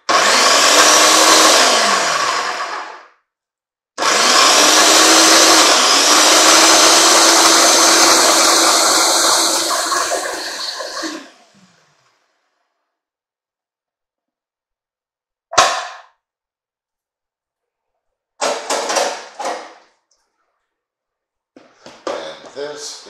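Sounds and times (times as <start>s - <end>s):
food processor motor running: 0.0s - 3.1s, 4.0s - 11.7s.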